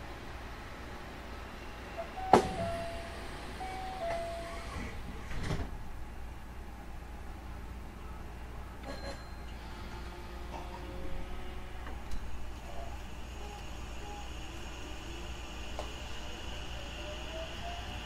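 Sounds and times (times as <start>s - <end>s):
hum of stationary train: 0.0s - 18.0s
train doors thudding shut: 2.0s - 5.8s
two-note door chime: 2.2s - 4.7s.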